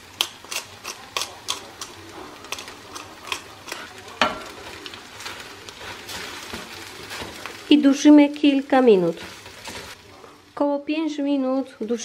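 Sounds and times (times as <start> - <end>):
low sizzle: 0.0 - 12.0
spatula scraping and knocking pan: 2.5 - 7.6.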